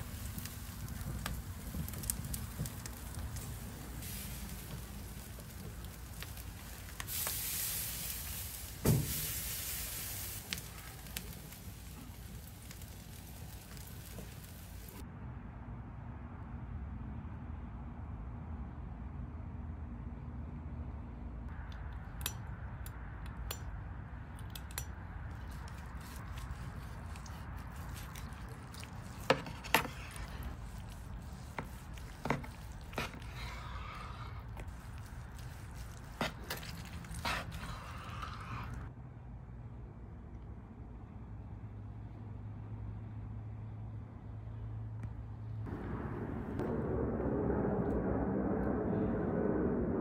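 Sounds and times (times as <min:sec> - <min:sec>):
meat sizzling on a grill: 0:00.0 - 0:15.0
roast thumping on grate: 0:00.0 - 0:15.0, 0:24.8 - 0:38.7
sharp crackles and clicks: 0:00.0 - 0:15.0, 0:24.4 - 0:38.9
knife cutting meat: 0:25.4 - 0:38.8.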